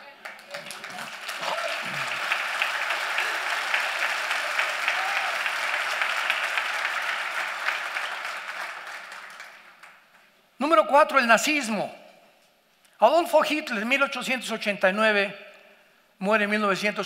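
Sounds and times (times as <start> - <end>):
large audience applauding: 0.0 - 10.3.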